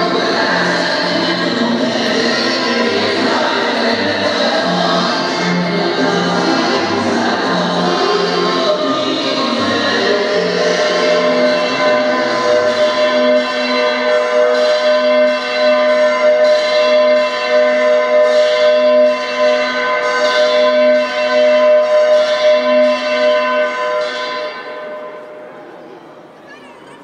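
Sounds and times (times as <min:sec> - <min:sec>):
dance music: 0:00.0 - 0:14.0.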